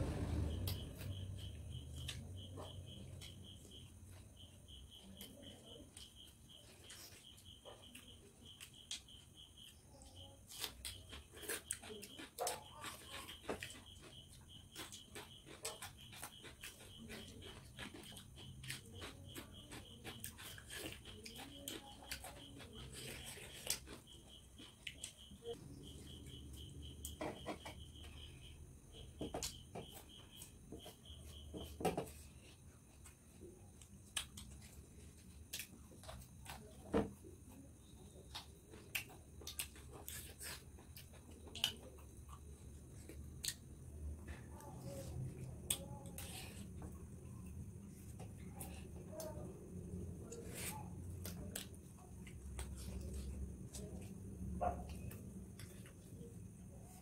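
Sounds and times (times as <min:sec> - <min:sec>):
person chewing: 0:10.4 - 0:25.4, 0:38.3 - 0:43.7, 0:54.9 - 0:56.3
chewing and lip smacks: 0:38.3 - 0:43.7.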